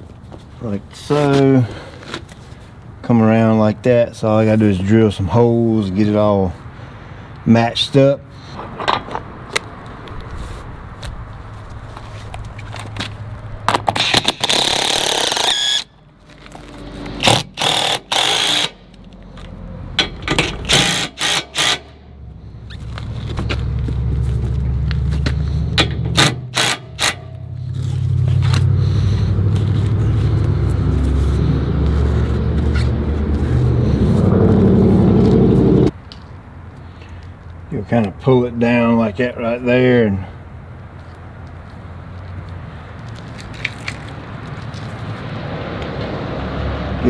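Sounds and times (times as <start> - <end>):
cordless drill drilling: 14.0 - 15.9, 17.2 - 18.8, 20.7 - 22.0, 26.2 - 27.1.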